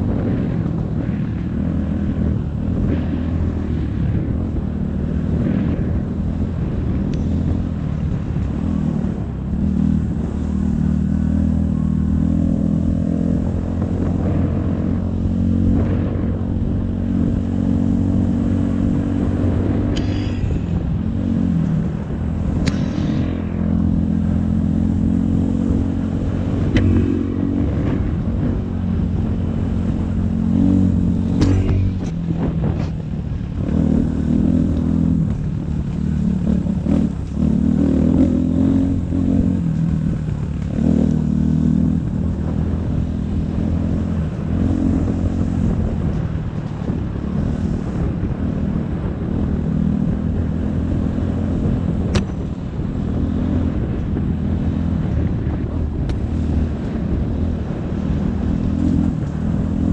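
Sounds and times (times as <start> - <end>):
dirt bike engine revving: 17.1 - 28.5, 29.8 - 32.9.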